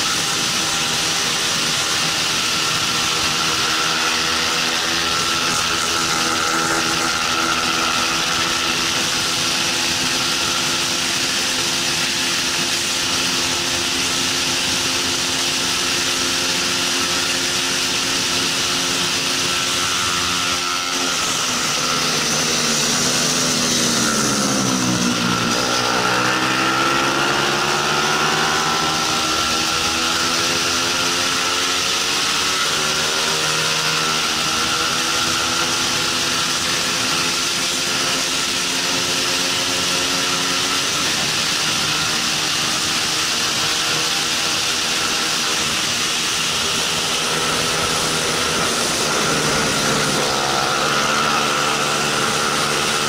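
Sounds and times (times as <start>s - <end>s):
motorcycle engine revving: 0.0s - 53.0s
wind rushing: 46.0s - 53.0s.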